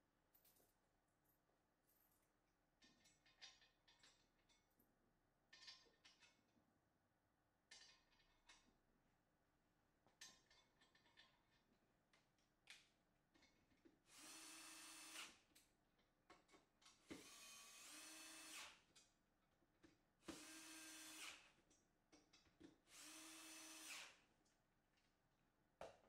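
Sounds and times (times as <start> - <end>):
drill-driver motor: 14.1 - 15.4, 17.2 - 18.8, 20.3 - 21.5, 22.9 - 24.2.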